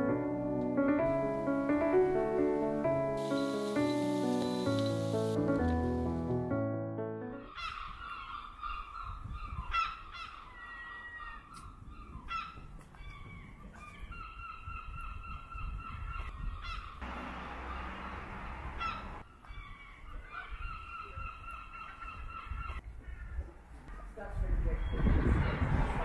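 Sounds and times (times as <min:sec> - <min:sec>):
gulls calling: 0:03.2 - 0:05.6, 0:07.4 - 0:23.4
broad hiss: 0:03.2 - 0:06.0
wind rumble: 0:11.6 - 0:19.8, 0:22.2 - 0:26.0.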